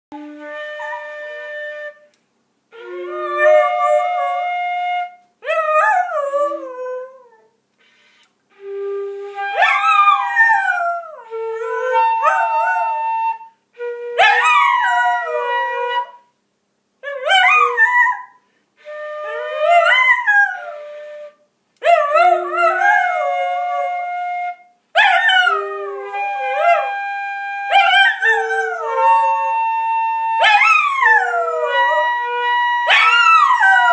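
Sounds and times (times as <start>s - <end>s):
flute playing held notes: 0.1s - 5.3s, 8.5s - 16.2s, 18.8s - 33.9s
dog howling: 32.9s - 33.9s.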